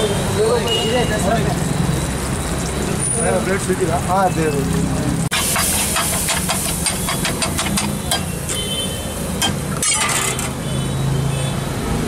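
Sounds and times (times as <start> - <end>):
steel ladle tapping on griddle: 5.4 - 8.7, 9.4 - 10.6.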